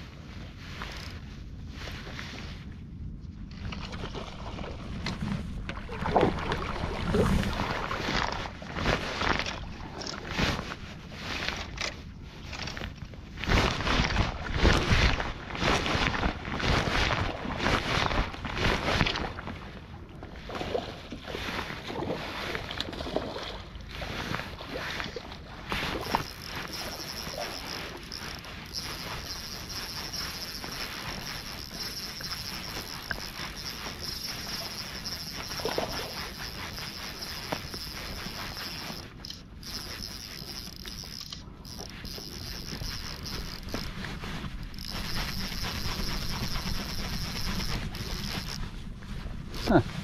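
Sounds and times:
wind noise on microphone: 0:00.0 - 0:23.3, 0:23.9 - 0:50.0
river water: 0:03.5 - 0:50.0
high insect trill: 0:26.0 - 0:43.9, 0:44.7 - 0:48.6.

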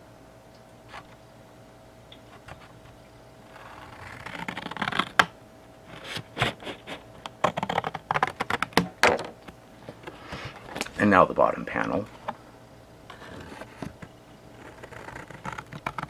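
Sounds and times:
cardboard clicking and crackling: 0:03.6 - 0:05.3, 0:05.9 - 0:11.0, 0:13.1 - 0:16.0
scissors cutting cardboard: 0:03.6 - 0:05.3, 0:05.9 - 0:08.9, 0:13.1 - 0:16.0.

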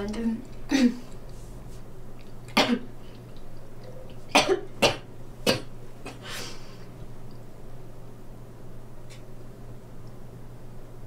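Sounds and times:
woman coughing: 0:00.7 - 0:01.1, 0:02.6 - 0:02.9, 0:04.3 - 0:06.2.

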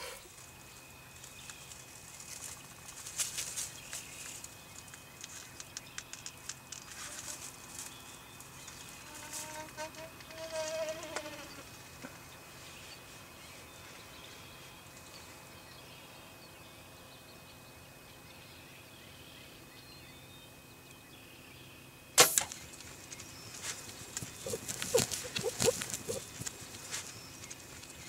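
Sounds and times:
arrow striking bird snap: 0:22.2 - 0:22.7
bird wings flapping: 0:22.5 - 0:28.0
turkey call: 0:24.4 - 0:27.1.

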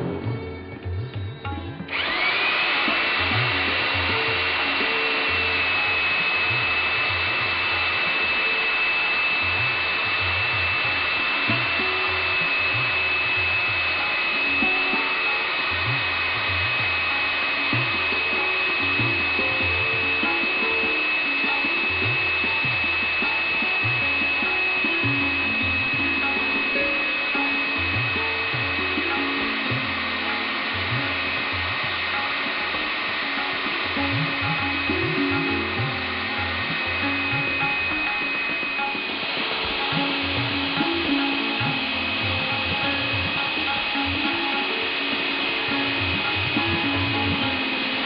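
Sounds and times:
core drill motor whine: 0:00.0 - 0:48.0.

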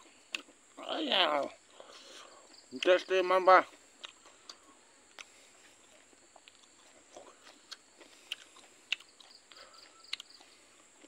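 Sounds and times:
person chewing food: 0:00.0 - 0:00.8, 0:03.6 - 0:11.0.

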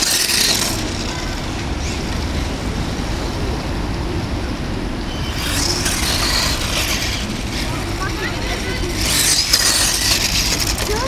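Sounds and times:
spiked tyres scraping ice: 0:00.0 - 0:02.1, 0:05.2 - 0:11.0.

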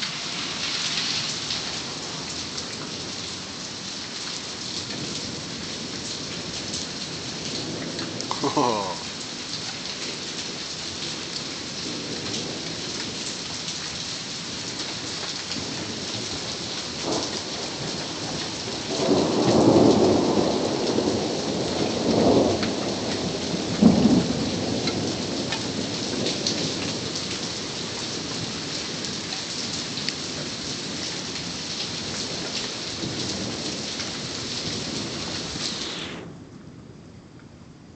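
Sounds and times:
steady rain: 0:00.0 - 0:37.9
raindrops ticking: 0:07.7 - 0:10.4, 0:24.7 - 0:27.3
thunder rolling and cracking: 0:15.6 - 0:27.4.

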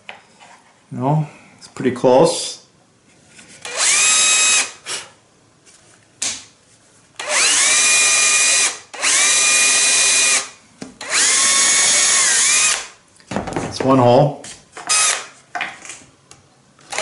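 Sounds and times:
cordless drill boring plywood: 0:03.6 - 0:04.8, 0:07.2 - 0:12.9, 0:14.8 - 0:15.3.

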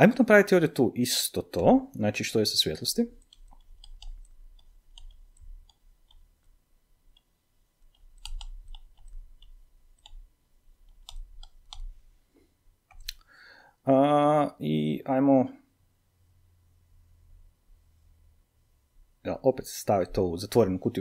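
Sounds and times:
stylus tapping on tablet: 0:07.1 - 0:11.9.

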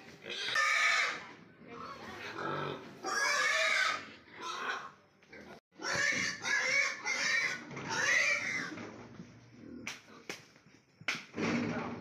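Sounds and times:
pigs squealing: 0:00.3 - 0:01.2, 0:01.9 - 0:05.0, 0:05.8 - 0:08.8.

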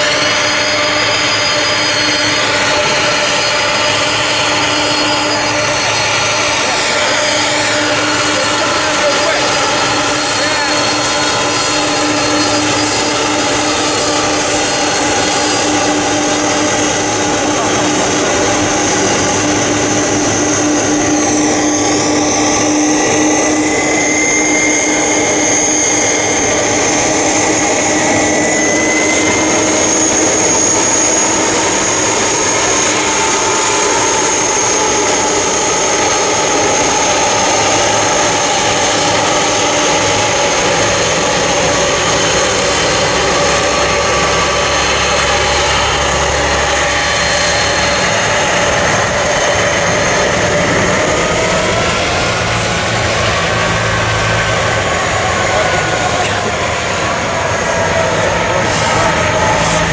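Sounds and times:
jet engines rushing and whining: 0:00.0 - 0:59.9.

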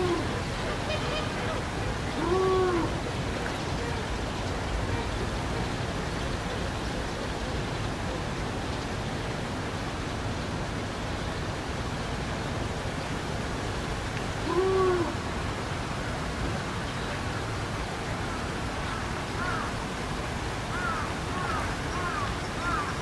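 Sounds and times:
hoot-like animal call: 0:00.0 - 0:00.4, 0:02.1 - 0:03.0, 0:14.4 - 0:15.2
outdoor background hiss: 0:00.0 - 0:23.0.

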